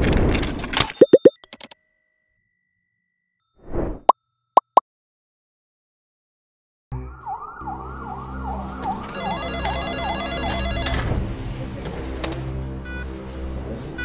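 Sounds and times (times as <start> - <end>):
siren-like wail: 6.9 - 11.0.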